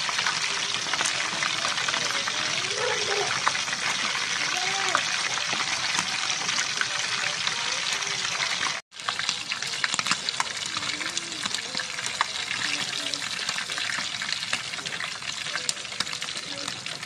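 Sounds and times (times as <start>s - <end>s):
chicken deep-frying in oil: 0.0s - 17.0s.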